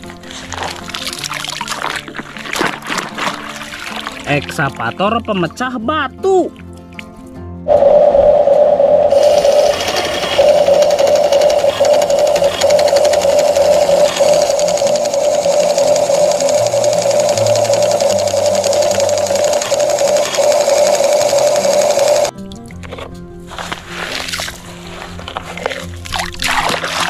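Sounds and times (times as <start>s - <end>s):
toy hammer buzzing and rattling: 9.1s - 22.3s.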